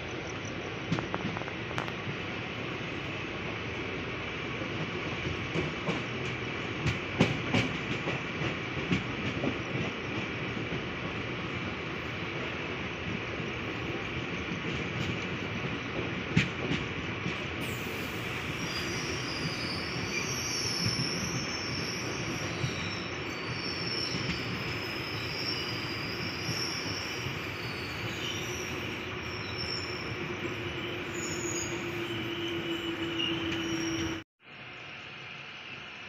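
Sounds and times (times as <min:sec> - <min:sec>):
train wheels rumbling on rail: 0:00.0 - 0:36.0
high wheel squeal: 0:17.6 - 0:34.2.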